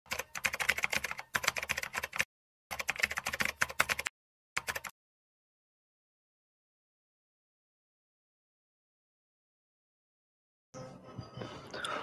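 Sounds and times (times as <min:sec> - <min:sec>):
keyboard typing clicks: 0:00.1 - 0:04.9.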